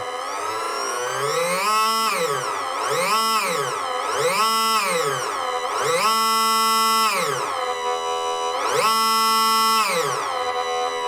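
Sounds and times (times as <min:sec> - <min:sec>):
electric smoke pump whining: 0:00.0 - 0:11.0.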